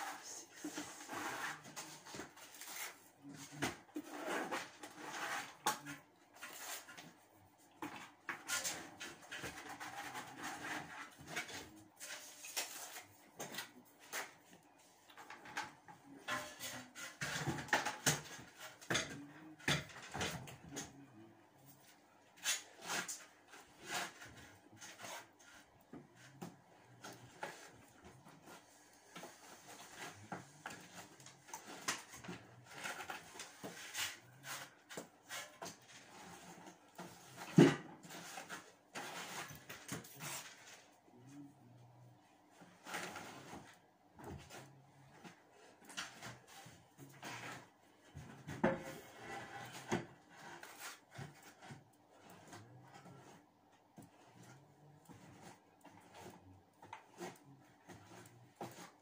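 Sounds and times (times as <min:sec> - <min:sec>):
trowel scraping across wall: 0:00.0 - 0:07.2, 0:07.9 - 0:14.4, 0:22.4 - 0:40.9, 0:45.3 - 0:59.0
trowel scraping plastic bucket: 0:00.0 - 0:07.2.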